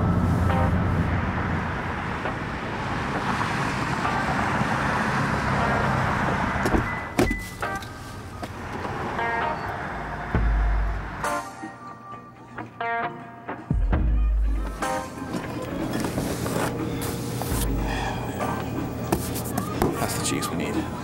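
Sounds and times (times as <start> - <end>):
car road and tyre noise: 0.0 - 11.6, 14.6 - 19.8.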